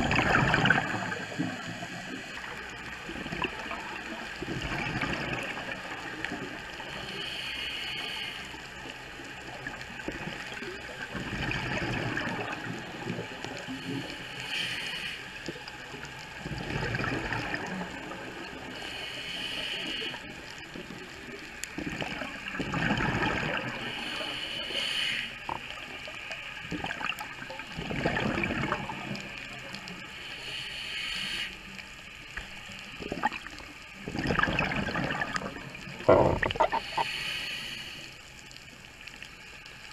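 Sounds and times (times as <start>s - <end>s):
diver breathing through regulator: 6.9s - 8.6s, 13.8s - 15.4s, 18.7s - 20.3s, 23.7s - 25.5s, 30.1s - 31.7s, 36.0s - 38.2s.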